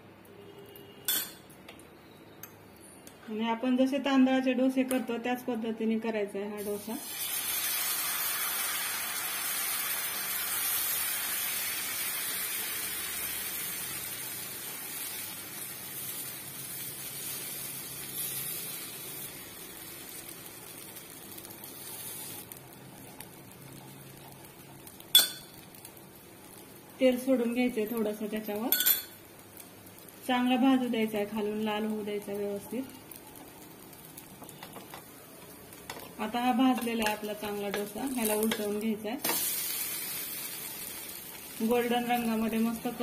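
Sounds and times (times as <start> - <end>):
batter sizzling on a hot pan: 6.6 - 43.0
ladle clink: 25.1 - 25.6, 28.7 - 29.2.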